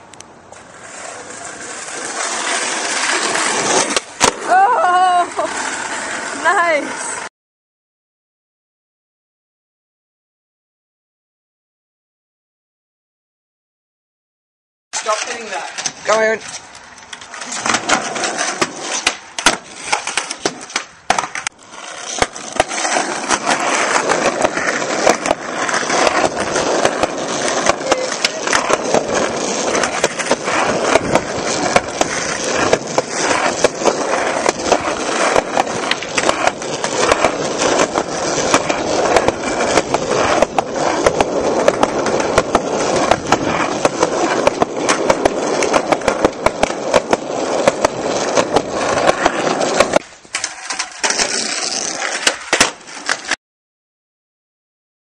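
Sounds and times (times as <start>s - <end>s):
skateboard wheels rolling on concrete: 0.0s - 7.3s, 14.9s - 53.4s
skateboard clacking against ground: 15.0s - 53.4s.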